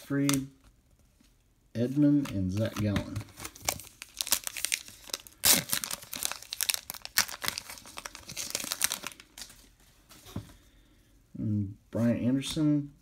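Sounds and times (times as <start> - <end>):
card pack wrapper crinkling: 2.1 - 9.7
wrapper ripping: 2.5 - 9.6.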